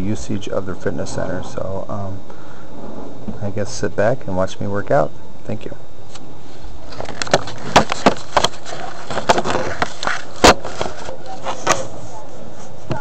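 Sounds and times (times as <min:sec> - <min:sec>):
steady background noise: 0:00.0 - 0:13.0
camera handling knocks: 0:07.1 - 0:08.5.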